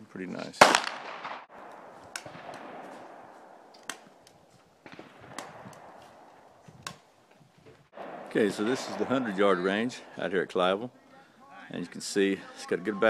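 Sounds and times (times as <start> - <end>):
quiet outdoor ambience: 0.0 - 13.0
faint gunshots: 0.6 - 4.1, 4.8 - 6.3, 8.0 - 10.2.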